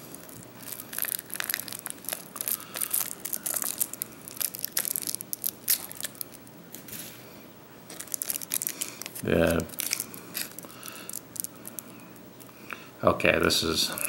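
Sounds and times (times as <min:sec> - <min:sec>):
foil pouch crinkling: 0:00.0 - 0:07.0, 0:07.9 - 0:12.0.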